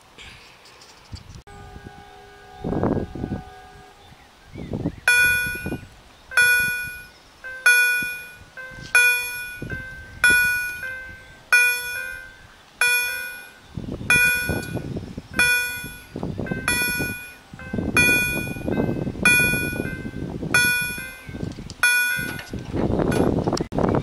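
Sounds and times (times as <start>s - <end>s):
low rumbling noise: 1.4s - 24.0s
level-crossing warning bell: 5.1s - 23.3s.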